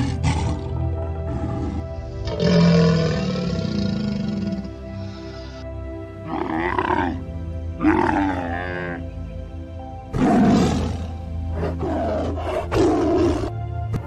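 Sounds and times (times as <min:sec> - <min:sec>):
tiger roaring: 0:00.0 - 0:04.8, 0:06.2 - 0:07.2, 0:07.8 - 0:09.0, 0:10.1 - 0:14.0
background music: 0:00.0 - 0:14.0
camel calling: 0:06.2 - 0:07.2, 0:07.8 - 0:09.0.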